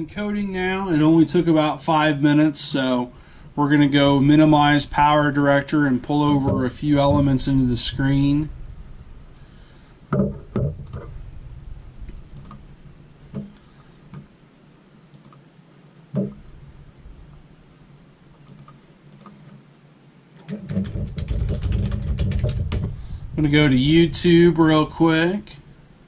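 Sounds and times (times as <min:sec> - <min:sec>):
mouse clicks: 0:12.2 - 0:12.6, 0:15.1 - 0:15.4, 0:18.4 - 0:19.6.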